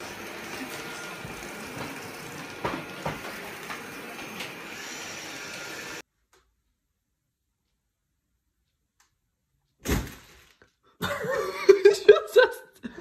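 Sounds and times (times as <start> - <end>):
robot vacuum cleaner running: 0.0 - 6.0.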